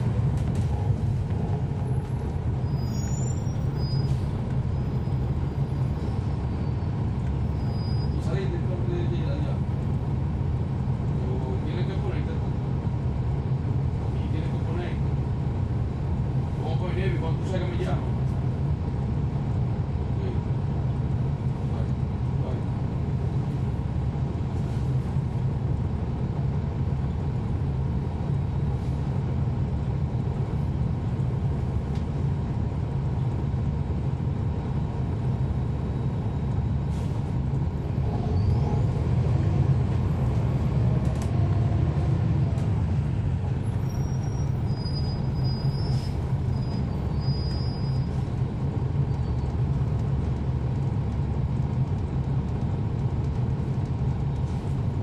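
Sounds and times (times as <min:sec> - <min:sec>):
bus diesel engine humming: 0:00.0 - 0:55.0.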